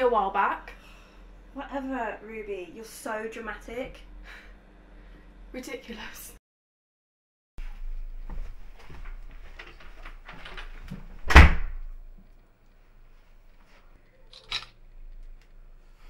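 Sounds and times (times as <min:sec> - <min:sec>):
door shutting with a thud: 0:10.3 - 0:11.9.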